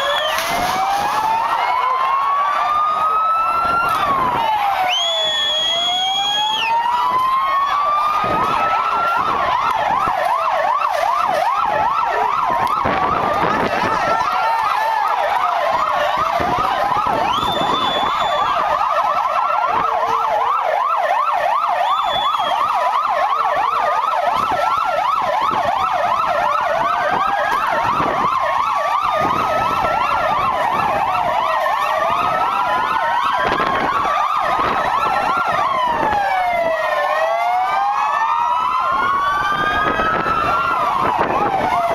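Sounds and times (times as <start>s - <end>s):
police sirens wailing: 0.0s - 41.9s
siren fast yelping sweeps: 15.4s - 18.8s.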